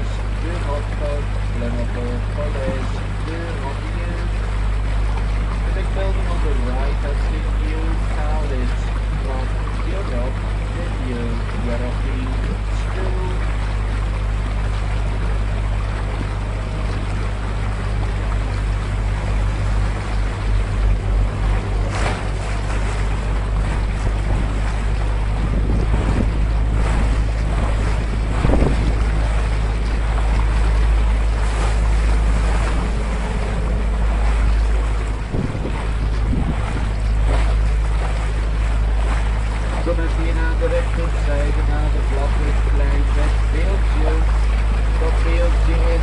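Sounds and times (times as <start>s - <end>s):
boat motor humming: 0.0s - 46.0s
wake churning and splashing: 0.0s - 46.0s
wind buffeting microphone: 13.4s - 46.0s.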